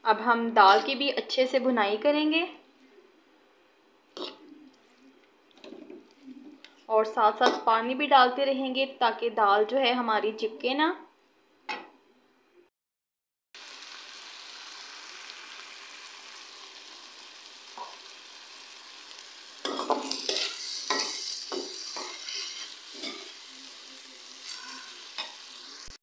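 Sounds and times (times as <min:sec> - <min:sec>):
lentils sizzling in oil: 0:13.6 - 0:26.0
metal spoon scraping a pan: 0:19.6 - 0:23.5, 0:24.3 - 0:25.6.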